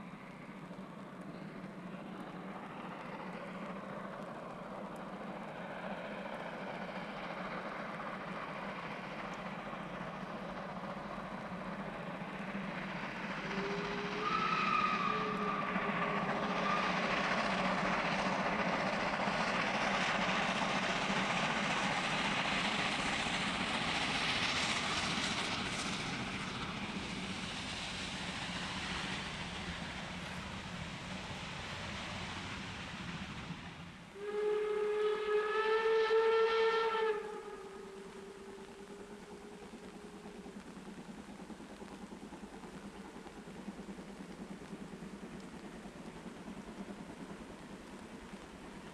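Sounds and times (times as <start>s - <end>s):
steam train running past: 0.0s - 48.9s
steam whistle: 13.4s - 17.2s, 34.2s - 39.2s.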